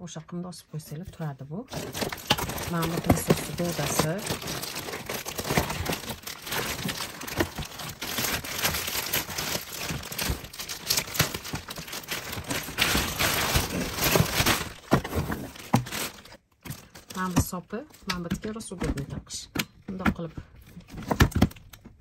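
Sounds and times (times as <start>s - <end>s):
plastic wrapping crinkling: 1.7s - 18.2s.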